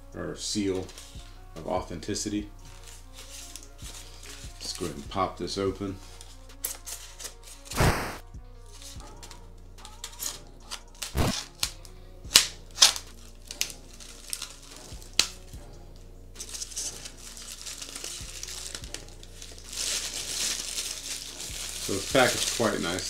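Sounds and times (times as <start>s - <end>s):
soft background music: 0.0s - 23.0s
knife slicing tape: 6.6s - 8.2s, 10.0s - 15.4s
foam lid scraping and cracking: 12.4s - 15.5s
plastic wrap crinkling: 12.7s - 15.5s, 16.4s - 23.0s.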